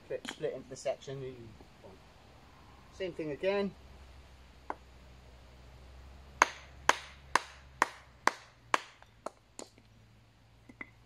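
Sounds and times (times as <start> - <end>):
wooden mallet knocking axe head: 6.4 - 9.4.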